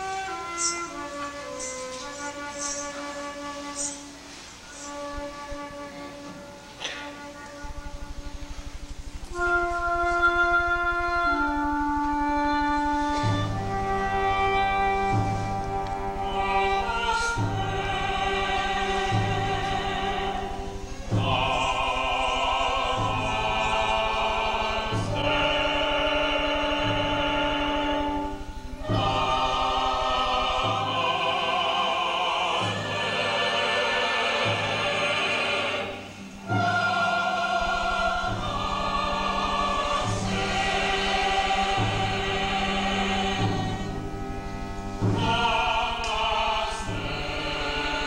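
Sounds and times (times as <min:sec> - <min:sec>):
choir-like voices: 0:00.0 - 0:48.0
orchestral music: 0:00.0 - 0:48.0
low sustained bass: 0:07.6 - 0:32.0, 0:36.4 - 0:48.0.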